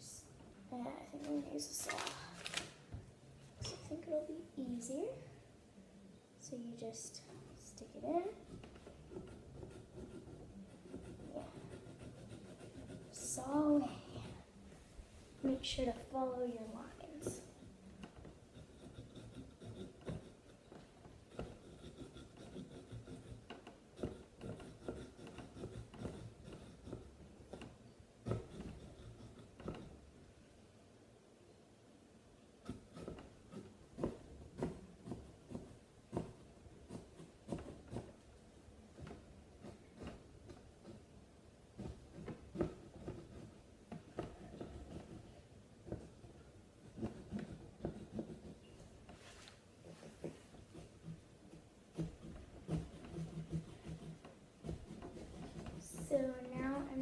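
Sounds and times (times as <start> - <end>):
small saw rasping through pumpkin: 7.4 - 14.5, 17.2 - 30.0, 50.0 - 57.0.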